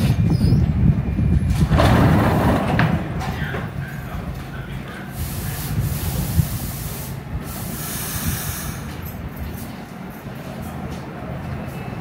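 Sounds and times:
subway train rumble: 0:00.0 - 0:12.0
hiss: 0:05.1 - 0:09.0.

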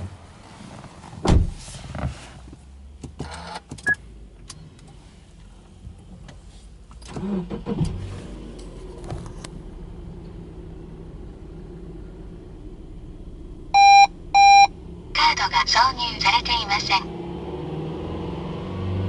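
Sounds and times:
thump inside car: 0:01.0 - 0:02.2
car engine idling: 0:08.4 - 0:17.0.

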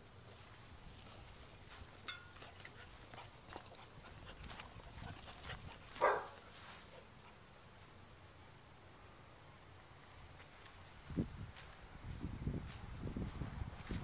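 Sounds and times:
rustling and footsteps on grass: 0:00.0 - 0:09.0, 0:09.6 - 0:14.0
puppy barking: 0:06.0 - 0:06.4.

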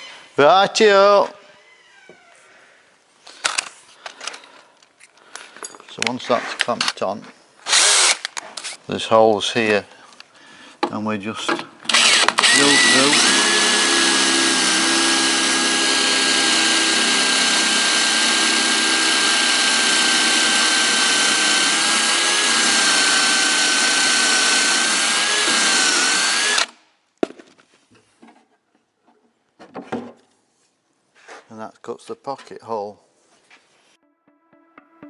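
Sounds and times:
cordless drill boring into wood: 0:07.7 - 0:08.3, 0:11.9 - 0:26.8.

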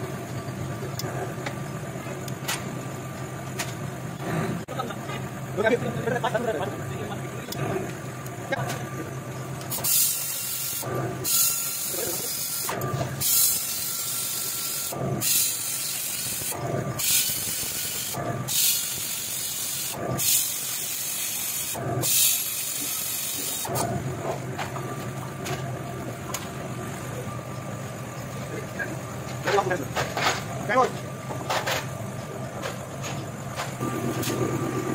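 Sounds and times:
steady low hum: 0:00.0 - 0:34.9.

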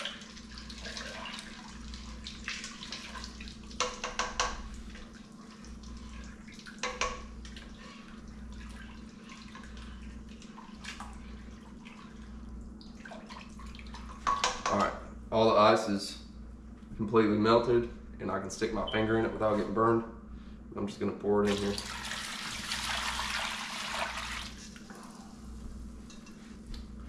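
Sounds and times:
water swishing in pot: 0:00.0 - 0:14.4.

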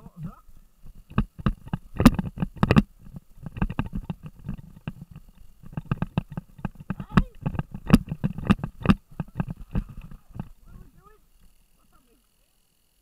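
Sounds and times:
bike knocks and rattles: 0:00.8 - 0:10.6.

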